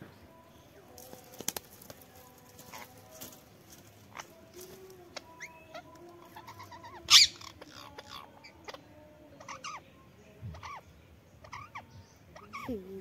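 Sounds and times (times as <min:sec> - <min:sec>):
parakeets chirping and squawking: 0:02.6 - 0:03.1, 0:04.1 - 0:09.9, 0:10.5 - 0:10.8, 0:11.4 - 0:12.9.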